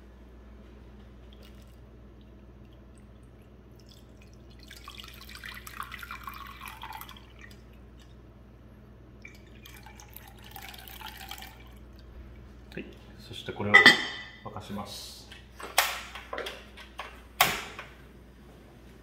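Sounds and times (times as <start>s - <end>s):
liquid pouring and splashing: 1.1s - 8.3s, 9.1s - 13.2s.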